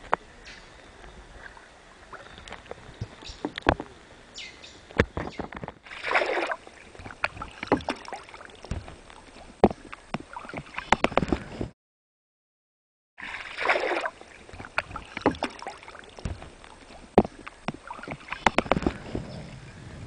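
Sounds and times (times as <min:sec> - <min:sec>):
paddle splashing in water: 0:04.9 - 0:11.7, 0:13.2 - 0:19.4.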